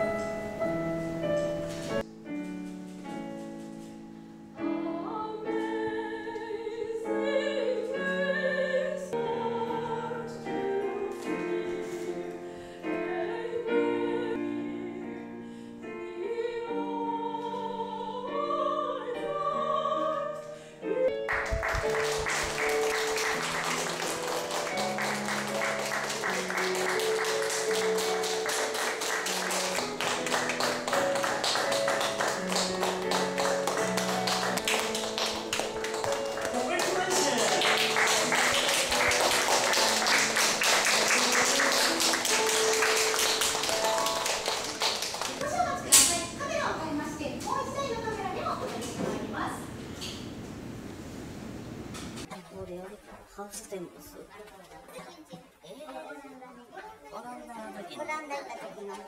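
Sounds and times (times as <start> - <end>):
piano accompaniment: 0.0 - 50.2
woman singing with vibrato: 4.8 - 12.2, 12.9 - 15.2, 16.0 - 21.2
audience applause: 21.2 - 45.7.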